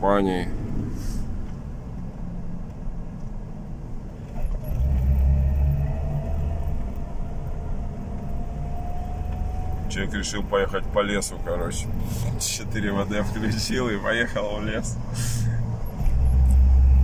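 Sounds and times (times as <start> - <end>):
car engine and road rumble: 0.0 - 17.0
faint rising whine: 4.6 - 17.0.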